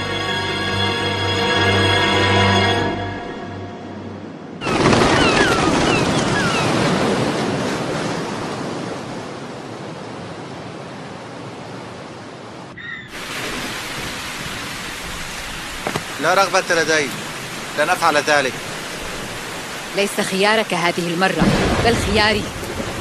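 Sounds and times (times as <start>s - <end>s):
surf washing on shore: 4.2s - 23.0s
steady rain: 4.3s - 23.0s
seabird cries: 4.6s - 7.0s, 12.7s - 13.2s.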